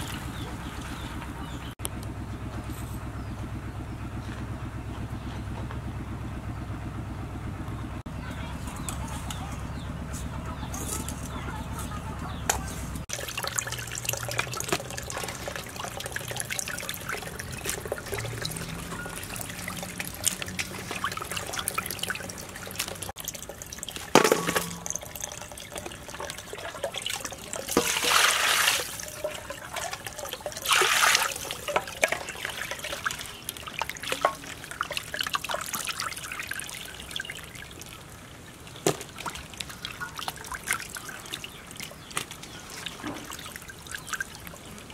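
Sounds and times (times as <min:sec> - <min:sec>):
motor hum: 0:00.0 - 0:27.7
water sloshing in metal pot: 0:12.4 - 0:44.9
water pouring: 0:13.0 - 0:44.9.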